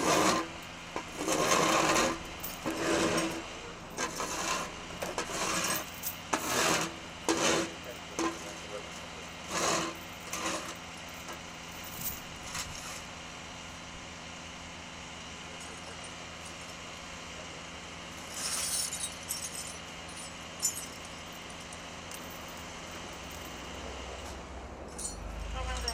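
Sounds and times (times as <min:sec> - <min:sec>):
broom and shovel scraping road: 0:00.0 - 0:13.5, 0:17.4 - 0:25.9
traffic hum: 0:00.0 - 0:14.0, 0:15.2 - 0:25.9
car engine rumbling: 0:18.1 - 0:25.9
debris clinking: 0:18.2 - 0:22.6, 0:24.9 - 0:25.9.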